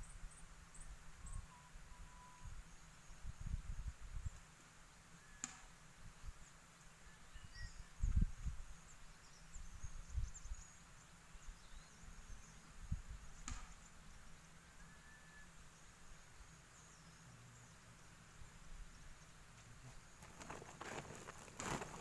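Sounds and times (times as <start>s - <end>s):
high chirps of birds or insects: 0.0s - 22.0s
wind rumbling on microphone: 3.2s - 4.4s, 7.9s - 8.7s.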